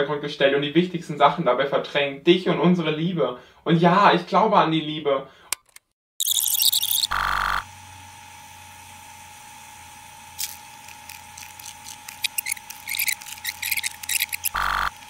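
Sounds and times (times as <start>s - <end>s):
high electronic tone: 6.2s - 7.6s, 14.2s - 15.0s
harsh electronic buzz: 6.2s - 7.9s, 10.4s - 15.0s
burst of static: 14.5s - 14.9s.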